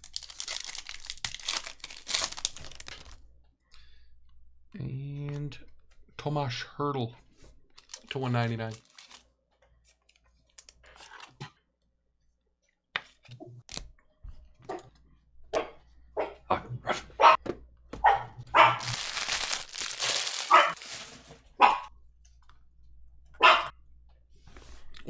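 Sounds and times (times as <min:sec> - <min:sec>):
dog barking: 0:15.5 - 0:17.4, 0:18.0 - 0:18.9, 0:20.5 - 0:20.8, 0:21.6 - 0:21.9, 0:23.4 - 0:23.8.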